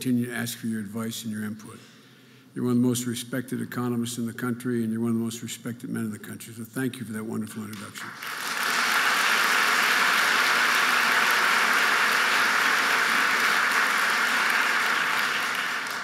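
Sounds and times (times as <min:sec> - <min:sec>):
audience applauding: 0:07.8 - 0:16.0.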